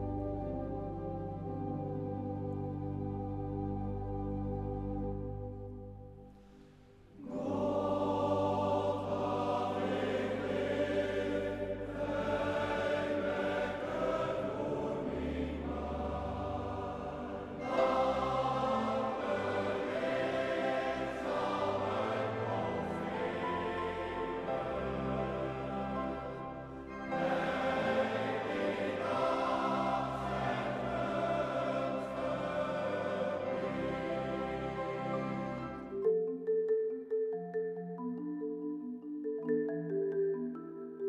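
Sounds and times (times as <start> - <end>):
men's choir singing a hymn: 7.2 - 35.9
held organ chord: 7.2 - 36.0.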